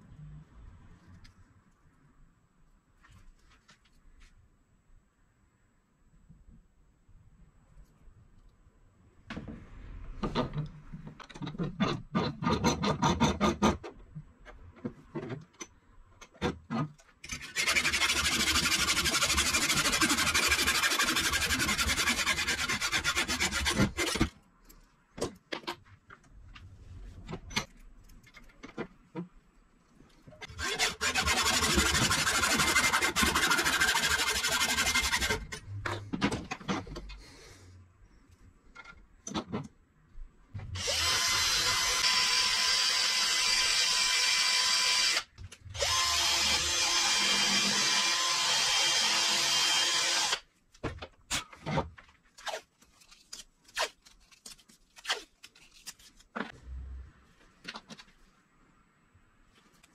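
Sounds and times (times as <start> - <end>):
hacksaw cutting metal: 11.4 - 13.9, 16.2 - 24.3, 30.4 - 36.0.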